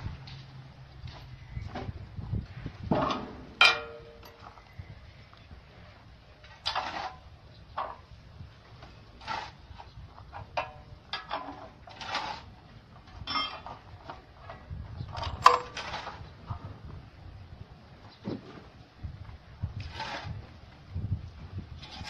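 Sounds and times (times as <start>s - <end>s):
metallic knocks: 2.9s - 4.5s
crane chains clanking on metal: 13.1s - 13.9s.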